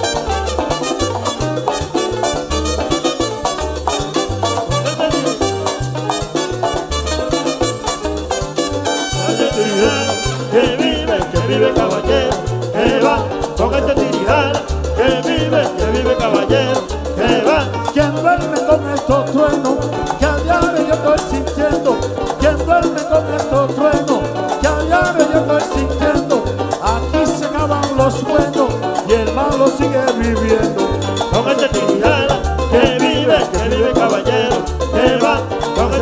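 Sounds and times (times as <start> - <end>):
live band playing: 0.0 - 36.0
upright bass pattern: 0.0 - 36.0
person singing: 4.7 - 5.7, 9.1 - 36.0.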